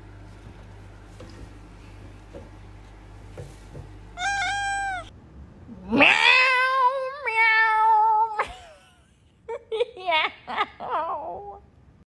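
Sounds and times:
cat meowing: 4.2s - 5.1s.

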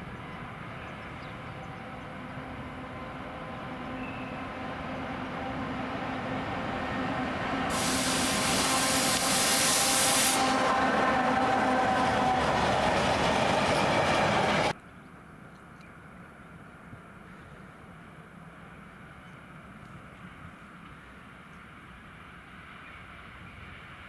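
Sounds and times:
freight train rolling past: 0.0s - 14.8s
wheels rushing on rail: 0.0s - 14.8s, 19.0s - 24.0s
train hiss and tones: 3.4s - 14.7s.

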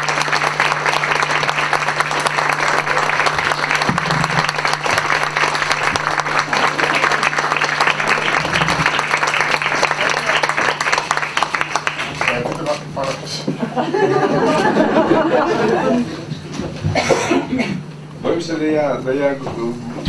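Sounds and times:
audience applauding: 0.0s - 13.2s.

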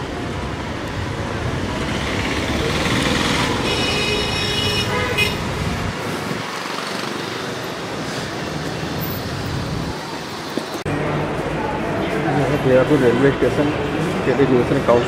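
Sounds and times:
street traffic hubbub: 0.0s - 15.0s
vehicle horn: 3.6s - 5.5s.

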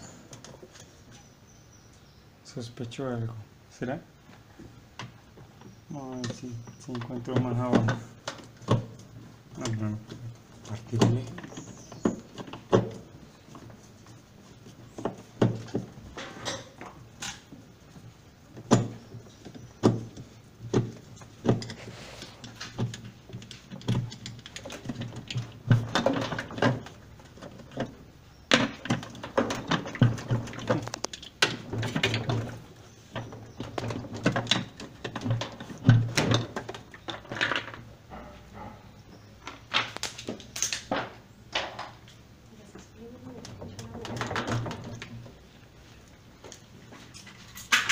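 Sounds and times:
hand tool knocking and scraping: 18.5s - 38.9s.

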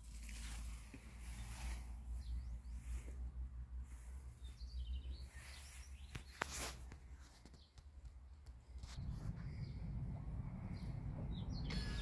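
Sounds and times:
small birds chirping: 0.1s - 12.0s
sharp scuffling noise: 5.6s - 7.7s
low steady rumble: 8.6s - 12.0s.

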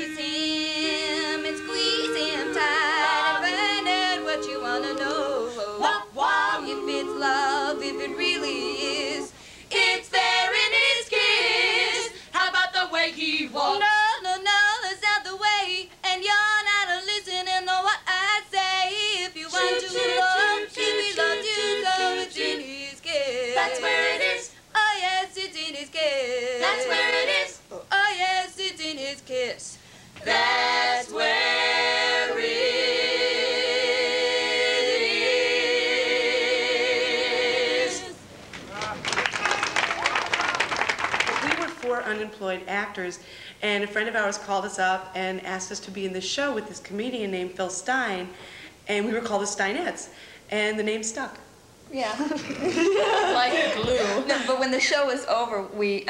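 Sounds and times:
women singing a cappella: 0.0s - 38.3s, 52.3s - 56.0s.

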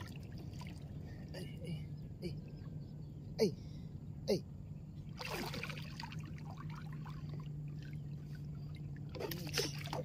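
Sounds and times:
water splashing: 0.0s - 1.0s, 5.1s - 10.0s.

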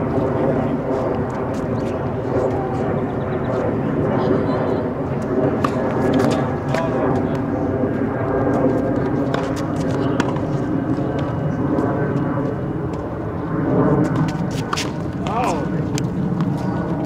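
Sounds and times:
tennis balls struck by rackets: 5.2s - 7.5s, 8.6s - 11.4s, 14.1s - 16.8s.

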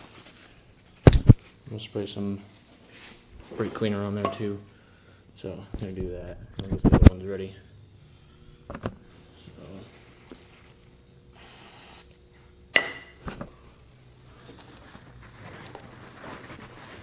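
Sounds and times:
aerosol can spraying: 11.4s - 12.1s.

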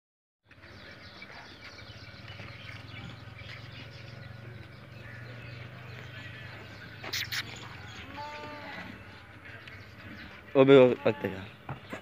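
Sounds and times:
faint small bird chirps: 7.0s - 7.8s.

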